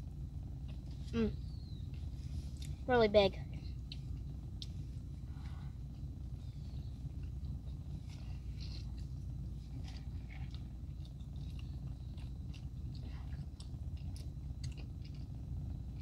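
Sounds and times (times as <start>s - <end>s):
low hum inside a car: 0.0s - 16.0s
person chewing food: 7.2s - 16.0s.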